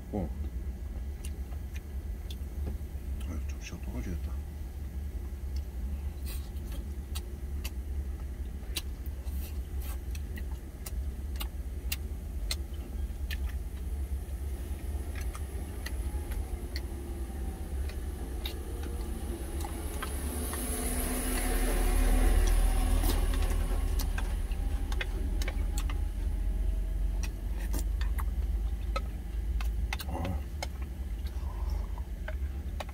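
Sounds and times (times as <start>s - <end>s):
truck engine idling: 7.2s - 32.9s.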